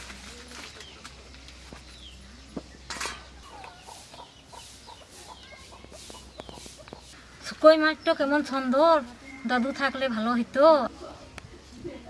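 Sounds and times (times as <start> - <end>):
paper and cloth rustling: 0.0 - 1.9
chickens clucking: 0.7 - 7.2.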